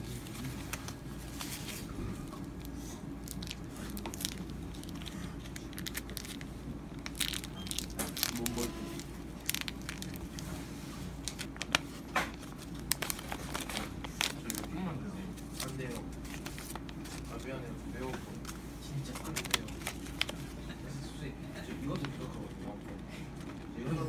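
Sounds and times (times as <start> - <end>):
plastic wrapping crinkling: 0.0 - 20.8
plastic sachet tearing open: 2.4 - 10.4, 11.2 - 14.8, 15.4 - 17.5, 19.1 - 20.6.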